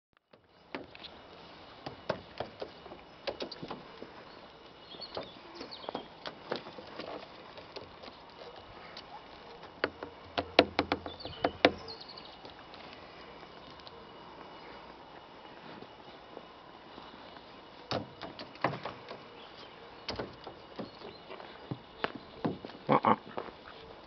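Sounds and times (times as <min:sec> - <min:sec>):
bird tapping on car roof: 0:01.8 - 0:03.8, 0:09.8 - 0:11.8, 0:17.9 - 0:19.2, 0:20.1 - 0:22.7.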